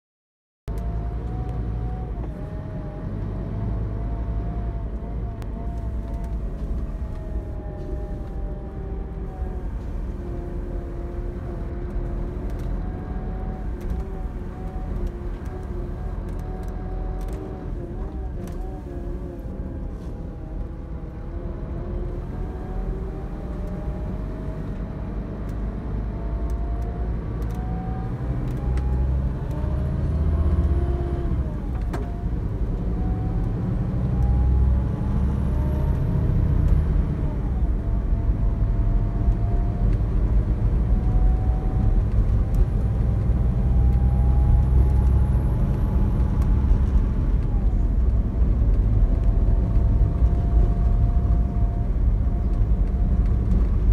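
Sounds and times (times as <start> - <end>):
diesel engine accelerating: 0.7 - 53.9
road rumble: 0.7 - 53.9.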